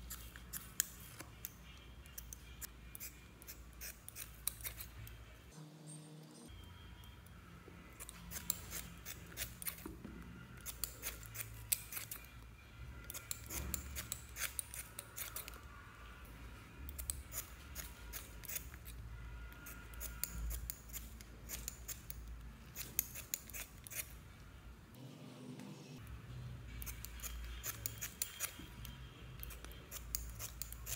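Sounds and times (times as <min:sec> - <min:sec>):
scissors snipping sponges: 0:26.7 - 0:30.9.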